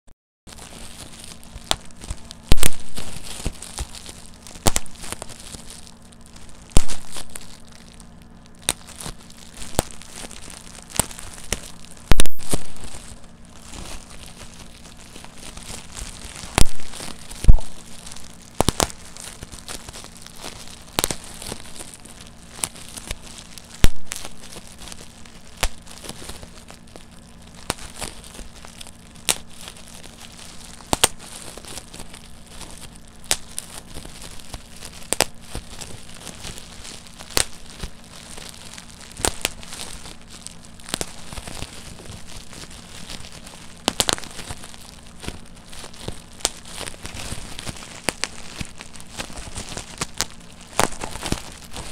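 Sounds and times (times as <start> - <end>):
bubble wrap popping: 0.5 - 51.9
plastic crinkling: 0.5 - 51.9.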